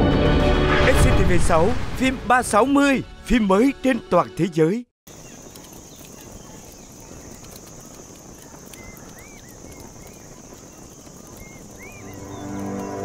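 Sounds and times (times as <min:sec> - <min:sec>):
high insect drone: 0:05.1 - 0:13.0.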